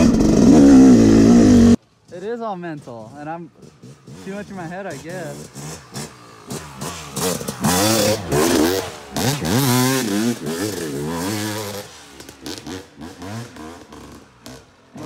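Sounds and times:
dirt bike engine revving: 0.0s - 1.8s, 3.2s - 15.0s.

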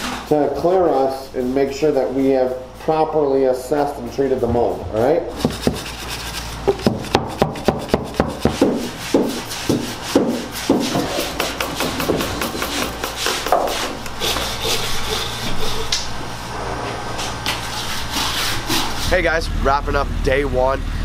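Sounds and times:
stiff brush scrubbing wood: 3.8s - 16.0s, 17.2s - 19.4s.

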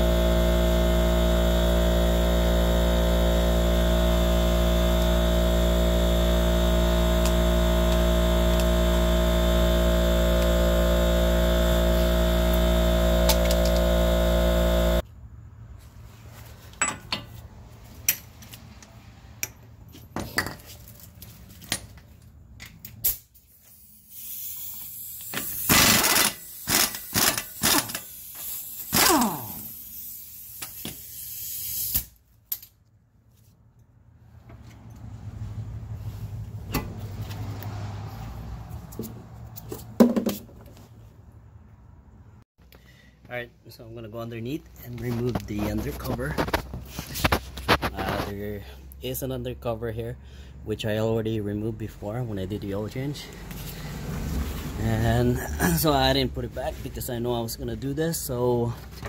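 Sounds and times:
steady multi-tone hum: 0.0s - 15.4s.

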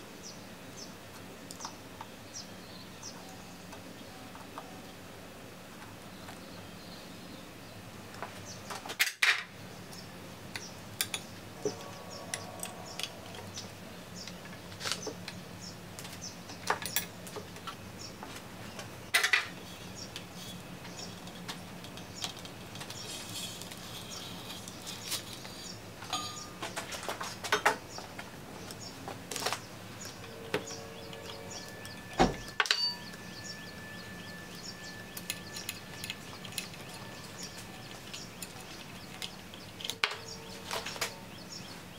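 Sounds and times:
metal parts clinking and knocking: 19.1s - 19.6s, 31.3s - 33.2s.

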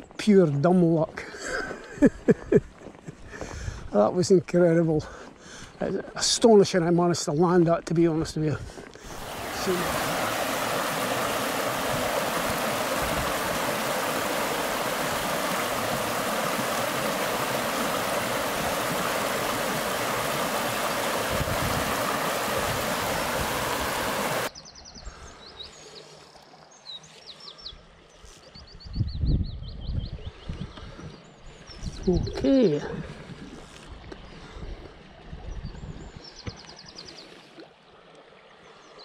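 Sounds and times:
small birds chirping: 9.0s - 32.8s
river rushing over stones: 9.1s - 24.5s.

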